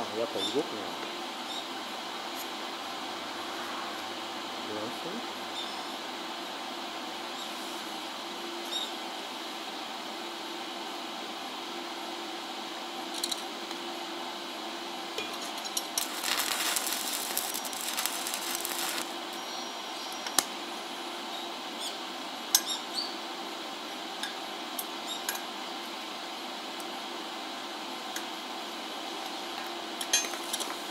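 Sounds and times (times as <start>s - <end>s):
steady hum: 13.6s - 20.0s
welding arc crackling: 15.4s - 19.4s.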